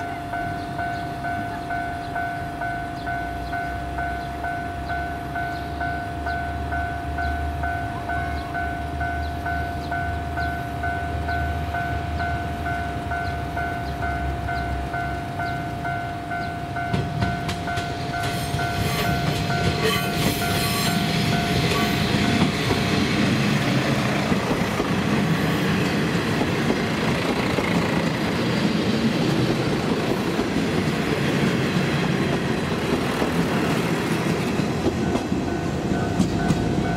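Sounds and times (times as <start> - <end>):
repeating warning tone: 0.0 - 23.3
diesel train passing: 0.0 - 36.9.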